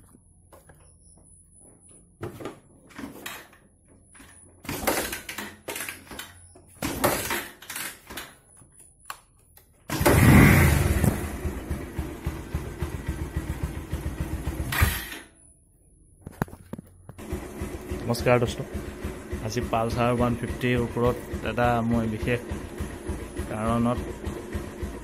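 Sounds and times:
motorcycle engine starting and idling: 0:00.0 - 0:15.6, 0:16.2 - 0:25.0.

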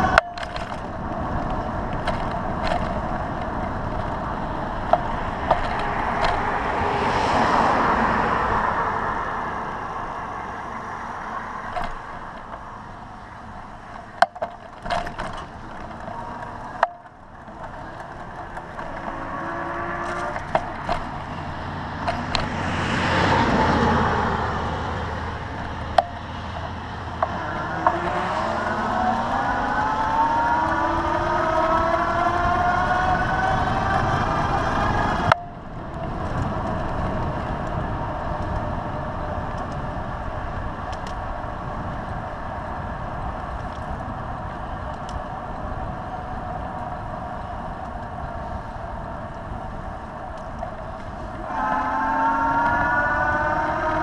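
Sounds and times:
bicycle clicks and rattles: 0:00.0 - 0:08.0, 0:10.0 - 0:54.0
vehicles passing: 0:00.0 - 0:54.0
wind and tyre noise: 0:00.0 - 0:54.0
siren wailing: 0:27.3 - 0:35.4, 0:51.4 - 0:54.0.

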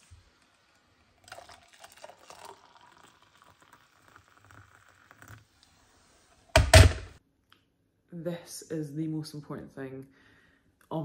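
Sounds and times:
hot water pouring into mug: 0:00.0 - 0:05.6.

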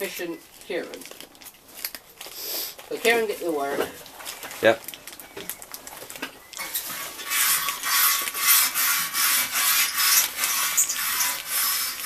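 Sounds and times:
hand rubbing or scraping: 0:02.2 - 0:02.8, 0:06.6 - 0:12.0.

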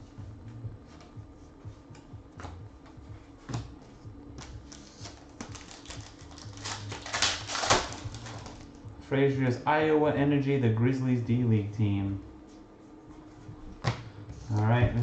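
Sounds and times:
cards being shuffled: 0:04.4 - 0:08.8.

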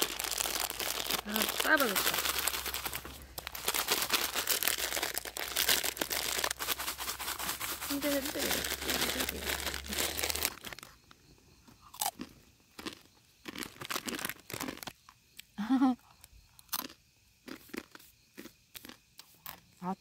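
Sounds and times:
plastic package crinkling: 0:00.0 - 0:11.0, 0:13.5 - 0:14.9
crunching and chewing noodles: 0:00.0 - 0:15.5, 0:16.1 - 0:19.9.

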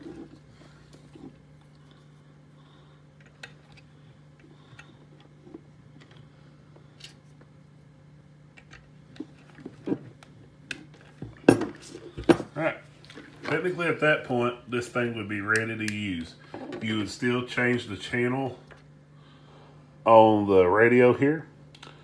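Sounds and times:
faint low hum: 0:00.0 - 0:22.0.

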